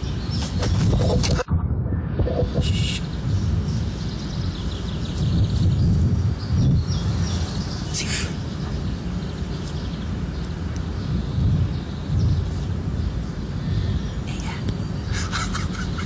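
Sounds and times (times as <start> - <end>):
small birds chirping: 0.0 - 1.4, 2.3 - 16.0
low outdoor rumble: 0.0 - 16.0
rustle: 4.8 - 15.7.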